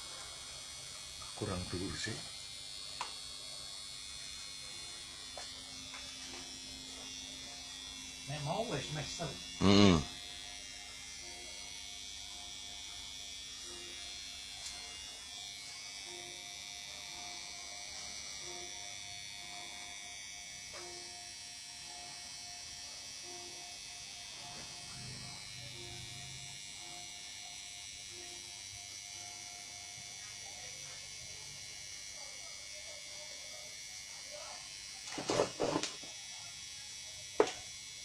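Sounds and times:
steady buzz and hiss: 4.2s - 11.4s.

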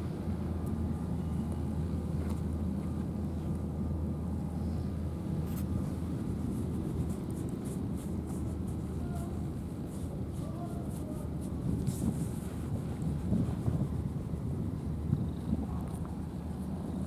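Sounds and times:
low outdoor rumble: 0.0s - 17.0s
faint soft rustles: 5.4s - 17.0s.

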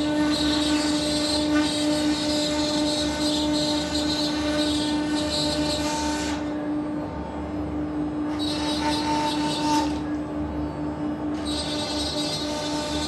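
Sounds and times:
wood router whine: 0.0s - 6.6s, 8.2s - 10.2s, 11.4s - 13.0s.

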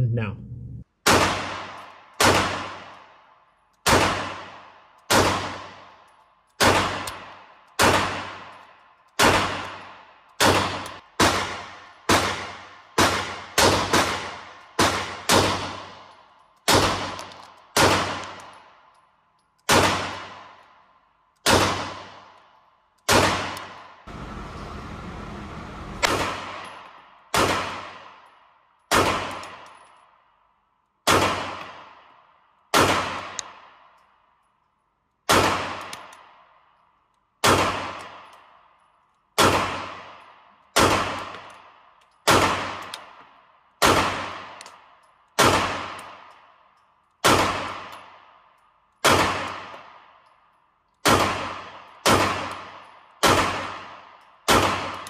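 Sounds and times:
short steady noise: 24.1s - 26.1s.

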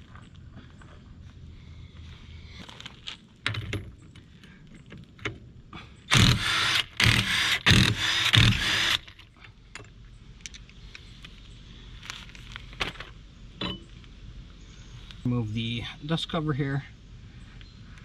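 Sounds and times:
impact wrench bursts: 6.1s - 9.1s.

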